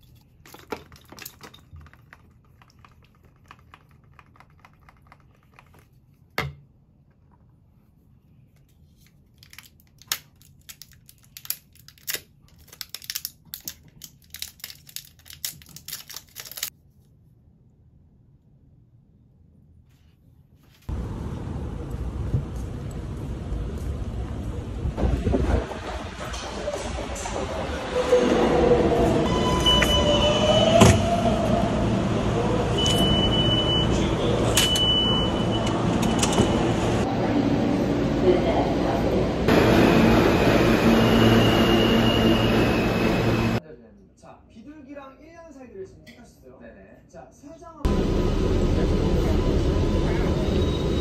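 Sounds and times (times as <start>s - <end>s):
subway station din: 20.9s - 43.6s, 47.9s - 51.0s
train rumble: 20.9s - 43.6s, 47.9s - 51.0s
high steady tone: 39.5s - 43.6s.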